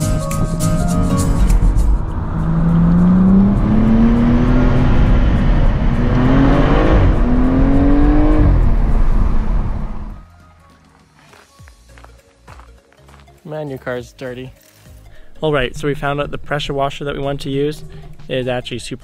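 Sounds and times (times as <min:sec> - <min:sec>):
car engine accelerating hard: 0:01.4 - 0:10.2, 0:15.6 - 0:19.0.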